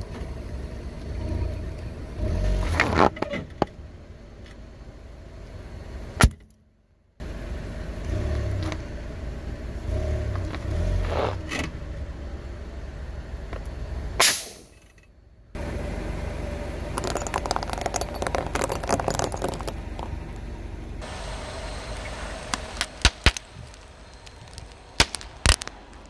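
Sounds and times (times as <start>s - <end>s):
car engine rumbling low: 0.0s - 6.2s, 7.2s - 14.2s, 15.1s - 26.0s
car tyre rolling on asphalt: 0.0s - 6.2s, 7.0s - 26.0s
plastic balls crackling under tyre: 16.8s - 21.0s, 22.0s - 26.0s
ball bursting with sharp pop: 22.5s - 26.0s.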